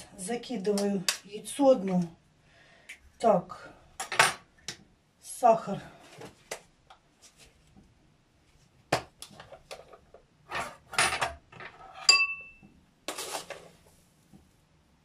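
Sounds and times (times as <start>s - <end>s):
spoon clinking against dishes: 12.1s - 12.6s.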